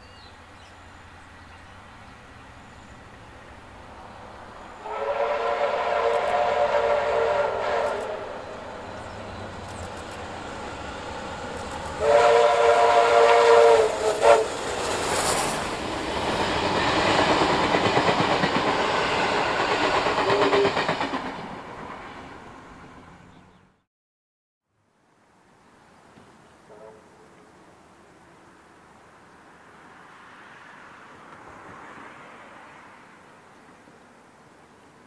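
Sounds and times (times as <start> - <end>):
train wheels on rails: 0.4 - 23.3
steam locomotive whistle: 4.8 - 8.6, 12.0 - 14.8, 18.8 - 20.8, 26.7 - 27.3
steam exhaust rushing: 4.8 - 21.3.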